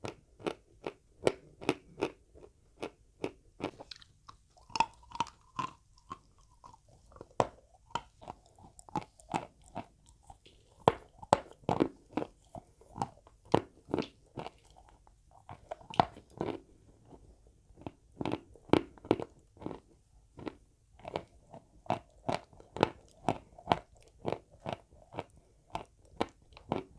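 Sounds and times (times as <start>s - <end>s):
chewing chalk crunches: 0.0s - 26.9s.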